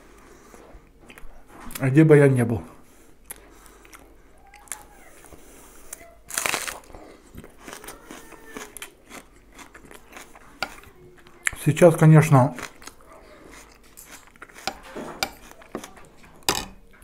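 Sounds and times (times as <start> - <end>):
chewing and mouth clicks: 1.0 - 1.4, 3.2 - 11.6, 12.5 - 16.5
crisp bite into onion: 6.3 - 10.4.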